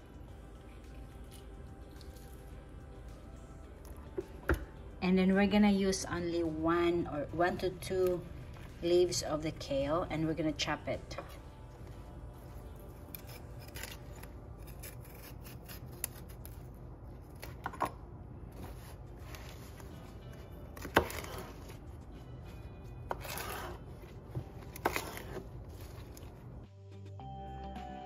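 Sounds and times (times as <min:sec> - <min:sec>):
knife chopping leaves: 0:13.1 - 0:16.6, 0:20.7 - 0:21.8, 0:23.1 - 0:26.3.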